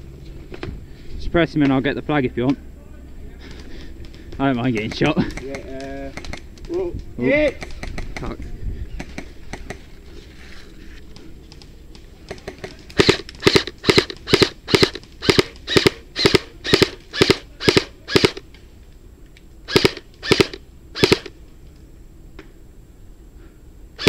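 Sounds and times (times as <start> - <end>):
airsoft rifle single shots: 19.7 - 21.3.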